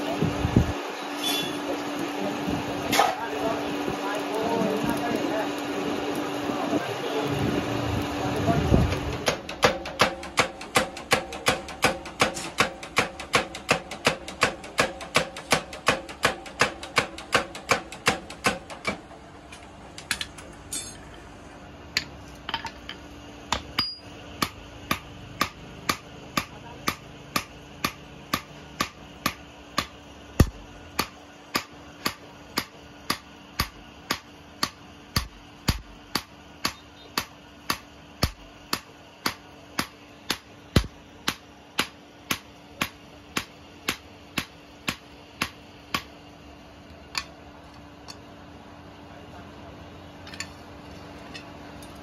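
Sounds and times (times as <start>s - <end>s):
hammer striking steel on anvil: 9.2s - 19.0s, 20.1s - 21.2s, 22.0s - 46.1s.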